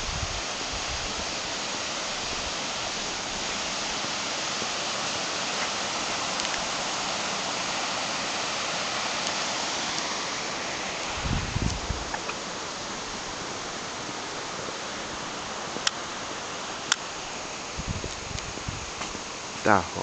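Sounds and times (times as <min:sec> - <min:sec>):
stream rushing over rocks: 0:00.0 - 0:20.0.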